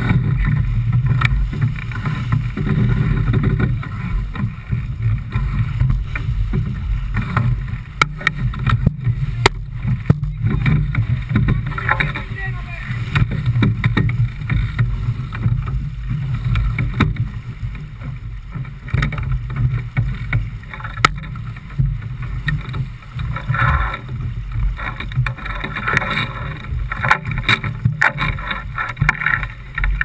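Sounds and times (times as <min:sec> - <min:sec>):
water splashing along hull: 0:00.0 - 0:30.0
wind buffeting the microphone: 0:00.0 - 0:30.0
sharp knocks: 0:08.0 - 0:12.3.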